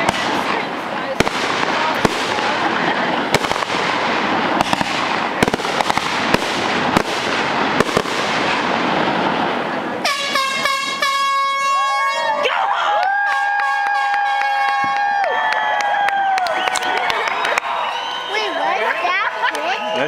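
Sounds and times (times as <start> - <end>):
fireworks crackling and banging: 0.0 - 12.1, 13.0 - 19.8
horns honking: 10.0 - 12.5, 13.2 - 15.0.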